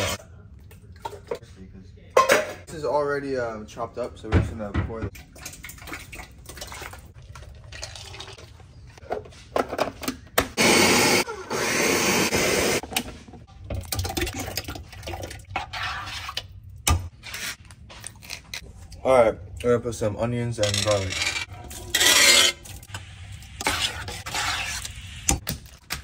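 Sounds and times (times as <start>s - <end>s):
blender running: 10.6s - 12.8s.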